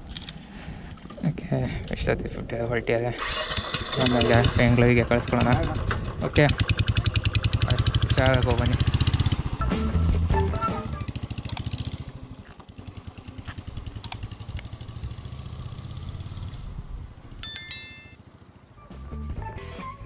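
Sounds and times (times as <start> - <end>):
short bright chime: 17.4 - 18.2.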